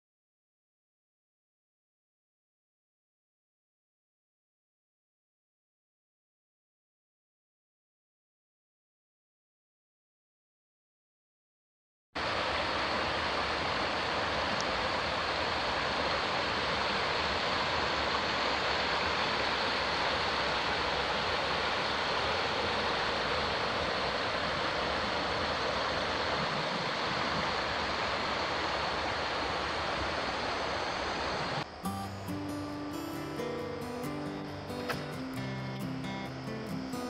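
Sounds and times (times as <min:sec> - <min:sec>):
stream flowing over pebbles: 0:12.2 - 0:32.8.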